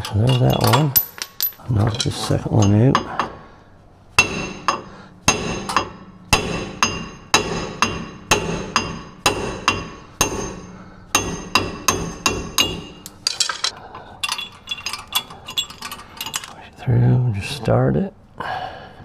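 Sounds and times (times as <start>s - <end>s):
hammer ringing on metal stud: 4.2s - 13.0s.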